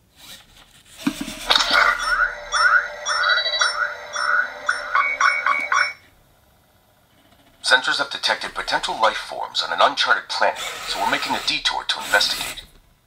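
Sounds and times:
rising electronic chirps: 1.0s - 6.0s
steady electronic tone: 1.0s - 6.1s.

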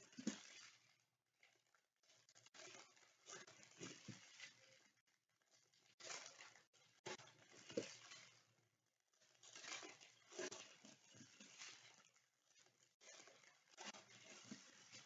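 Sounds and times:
foil wrapper crinkling: 9.2s - 15.0s.

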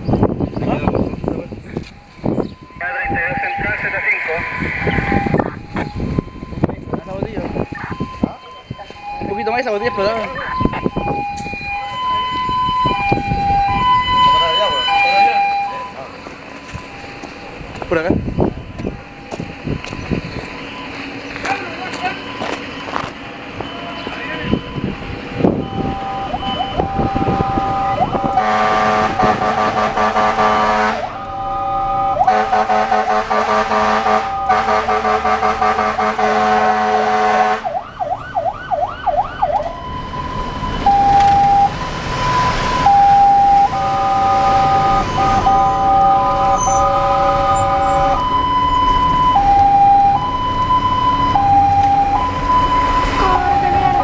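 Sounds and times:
two-tone hi-lo siren: 0.2s - 54.0s
warbling siren yelp: 2.2s - 23.0s, 23.6s - 54.0s
fire engine horn blasts: 3.0s - 6.0s, 25.5s - 37.8s, 40.9s - 50.3s, 51.3s - 54.0s.

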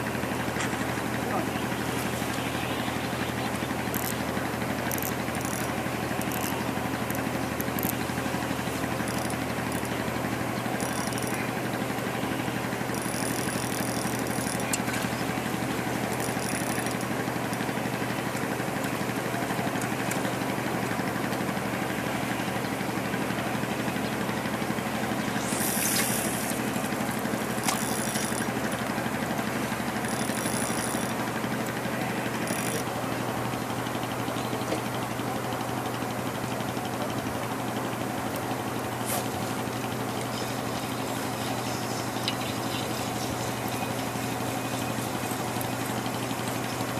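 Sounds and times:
steady mechanical hum: 0.0s - 46.9s
short hiss: 39.0s - 39.4s.

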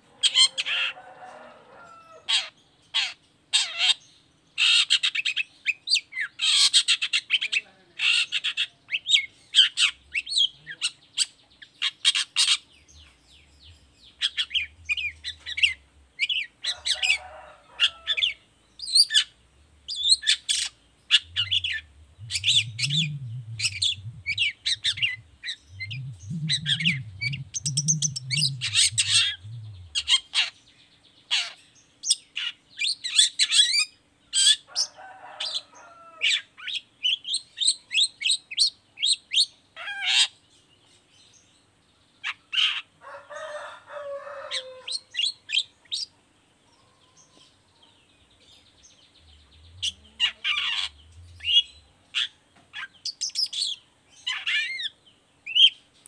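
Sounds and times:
shrike singing: 13.0s - 30.4s.

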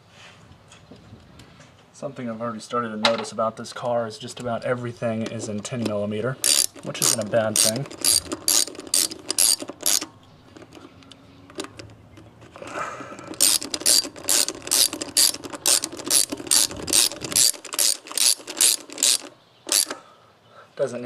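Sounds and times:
hand ratchet clicking: 4.4s - 11.9s, 12.6s - 20.0s.

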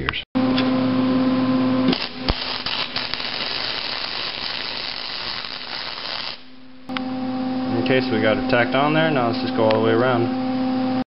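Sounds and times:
electrical hum: 0.0s - 11.0s
welding arc crackling: 1.9s - 6.6s.

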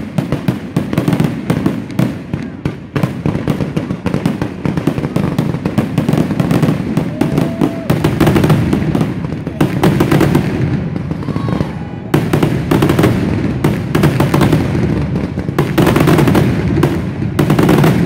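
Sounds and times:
fireworks barrage: 0.0s - 18.0s.

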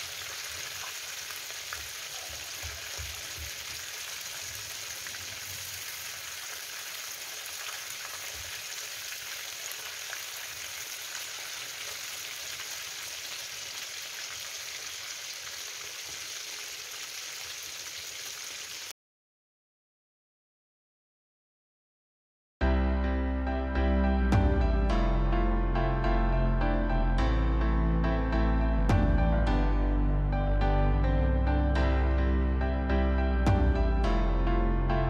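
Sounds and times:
fish sizzling in frying pan: 0.0s - 18.9s.

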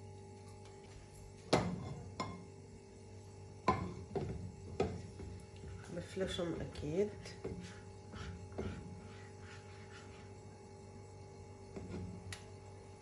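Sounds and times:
frying pan knocking on stovetop: 3.6s - 5.2s.

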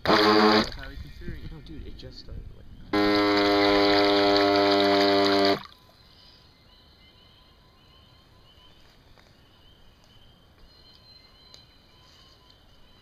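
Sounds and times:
electric boat motor humming: 0.0s - 0.8s, 3.0s - 5.6s
faint high chirp: 5.6s - 13.0s.

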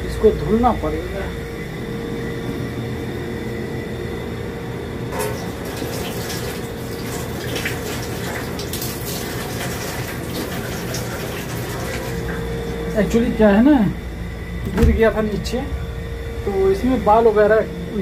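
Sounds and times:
steady hum: 0.0s - 18.0s
tap water splashing: 5.2s - 12.5s.

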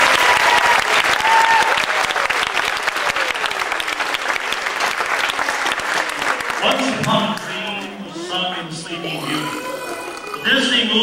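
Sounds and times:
audience applauding: 0.0s - 11.0s
faint voices: 6.0s - 11.0s.

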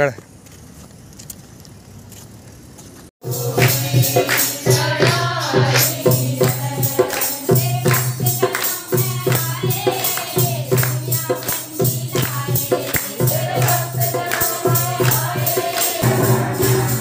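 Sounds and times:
group devotional singing: 3.2s - 17.0s
percussion beat: 3.2s - 17.0s
hand clapping: 5.8s - 16.0s.

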